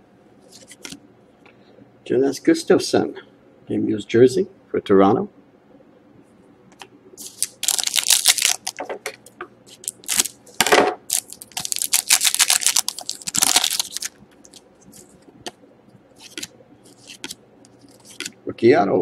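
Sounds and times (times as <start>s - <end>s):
foil wrapper crinkling: 7.2s - 8.9s, 9.7s - 10.4s, 11.1s - 15.2s, 16.2s - 18.3s.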